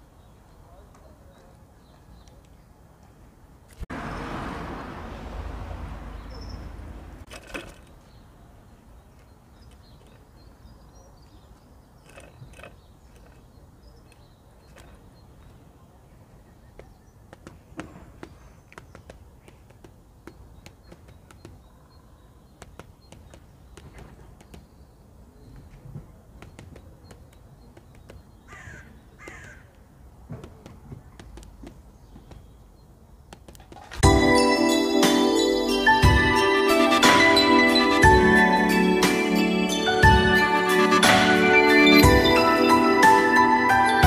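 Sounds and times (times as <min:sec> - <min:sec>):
woodpecker tapping on wire feeder: 0:12.0 - 0:15.1, 0:26.4 - 0:29.6.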